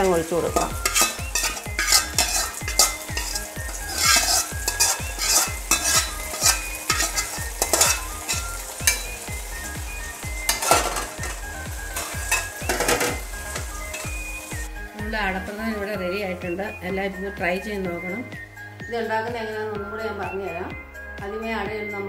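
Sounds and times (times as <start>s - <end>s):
hot oil sizzling: 0.0s - 16.9s, 17.5s - 18.8s
spoon scraping and clinking on pan: 0.4s - 14.6s.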